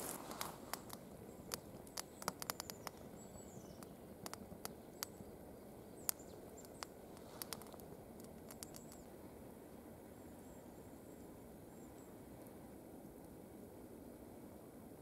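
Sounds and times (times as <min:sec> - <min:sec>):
wood fire crackling and popping: 0:00.0 - 0:05.4, 0:06.0 - 0:09.0.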